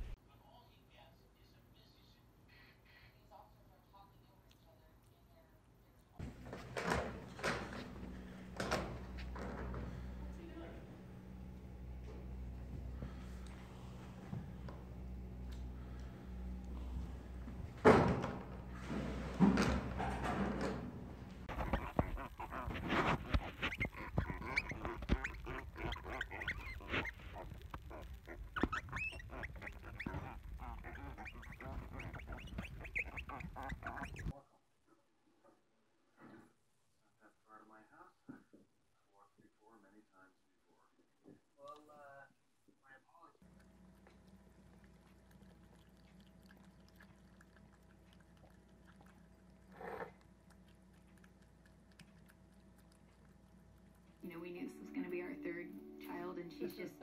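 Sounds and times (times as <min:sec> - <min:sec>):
cats lapping and chewing: 0:06.2 - 0:34.3, 0:43.4 - 0:55.2
piglets grunting and squeaking: 0:21.4 - 0:34.3, 0:45.7 - 0:50.3.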